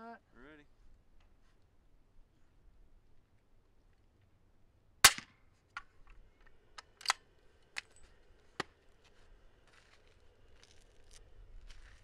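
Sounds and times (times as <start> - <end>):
suppressed rifle shot: 5.0 - 5.4
rifle handling clicks and knocks: 5.2 - 8.8.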